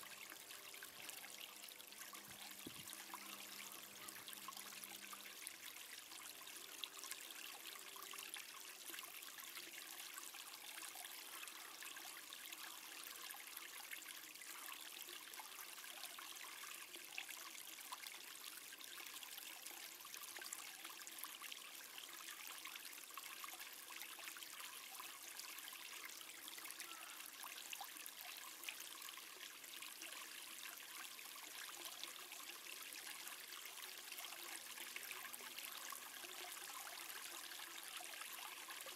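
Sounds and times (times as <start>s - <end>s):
outdoor background hiss: 0.0s - 10.5s.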